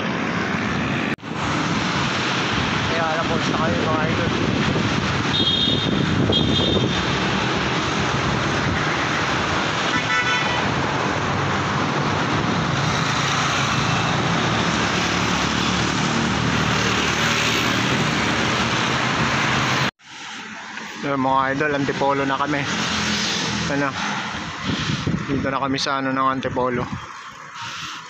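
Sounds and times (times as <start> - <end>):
wind rushing over microphone: 0.0 - 19.9, 20.9 - 27.5
road traffic noise: 0.0 - 28.0
vehicle horn toot: 5.3 - 7.0, 9.9 - 10.7.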